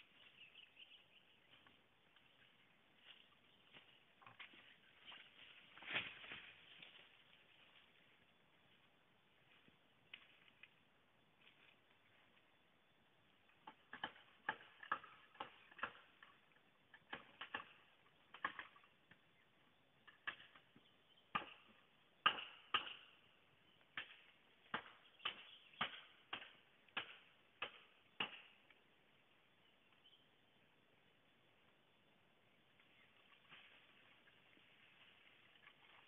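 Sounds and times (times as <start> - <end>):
machete chopping bamboo: 13.7 - 16.2, 17.0 - 18.7, 21.3 - 23.2, 24.0 - 28.6.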